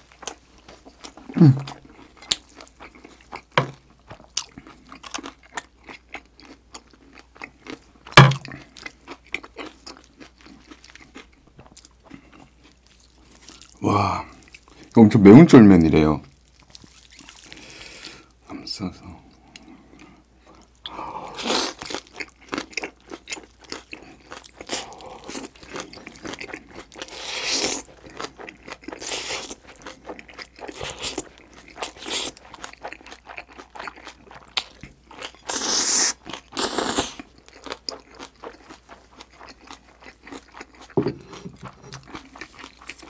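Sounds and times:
wet chewing and crunching: 0.0 - 15.0, 16.2 - 18.4, 19.3 - 43.0
slurping noodles: 35.4 - 37.2.

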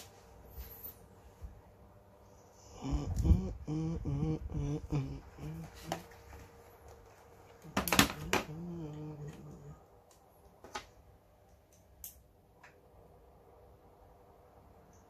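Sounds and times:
man humming: 2.5 - 6.2, 7.6 - 9.9.

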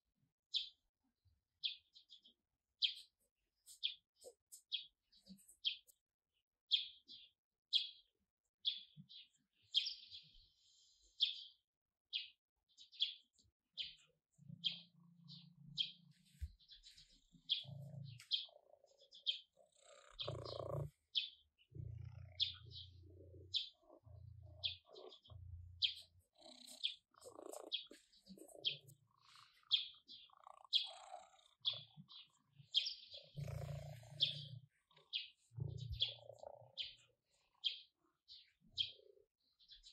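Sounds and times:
songbird chirping: 0.1 - 39.9
cat purring: 17.2 - 37.8.

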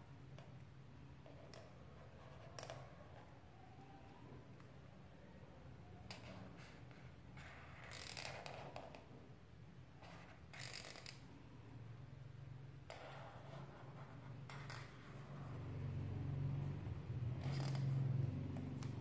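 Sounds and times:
marker scratching on paper: 1.3 - 3.3, 10.0 - 10.6, 12.9 - 15.5.

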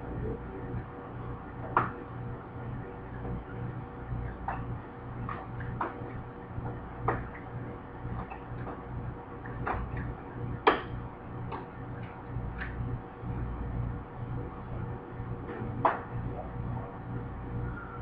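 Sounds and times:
pulsing low hum: 0.0 - 18.0.

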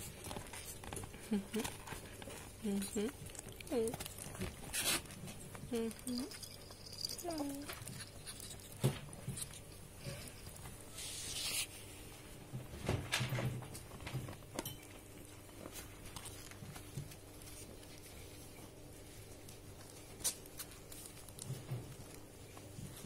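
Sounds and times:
soft rustling and scratching: 0.0 - 23.0
animals scuffling on blanket: 6.9 - 12.8, 15.2 - 23.0.

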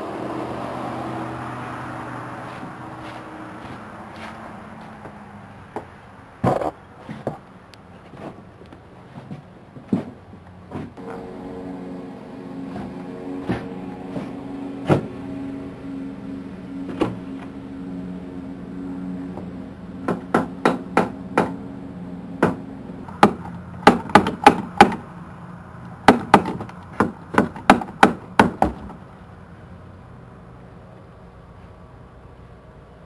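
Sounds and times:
steady low hum: 5.4 - 26.3
sharp knocks: 20.0 - 21.6, 22.4 - 25.0.

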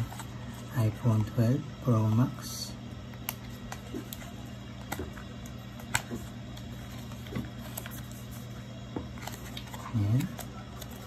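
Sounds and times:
steady low hum: 0.0 - 11.0
paper packaging clicks and rustles: 3.2 - 11.0.

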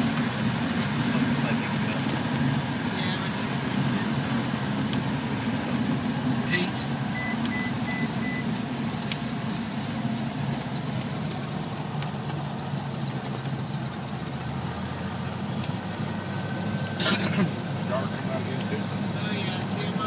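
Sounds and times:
aircraft engine and propeller droning: 0.0 - 20.0
broken high beeping tone: 7.1 - 8.5.

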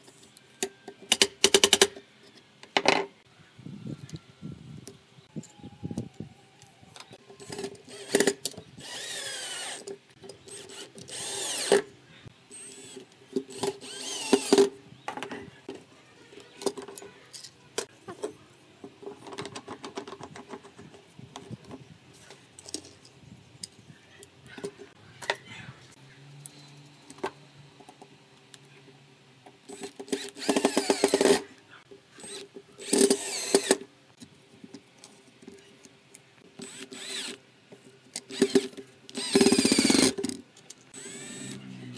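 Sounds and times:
cordless drill whirring: 7.4 - 9.8, 10.4 - 11.8, 12.5 - 14.7, 29.8 - 31.5, 32.2 - 33.8, 36.6 - 37.4, 38.3 - 40.2, 41.0 - 41.6.

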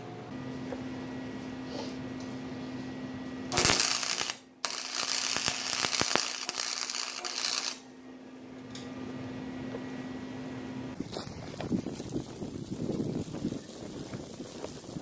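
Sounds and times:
welder arc crackling: 3.5 - 7.8, 11.0 - 15.0.

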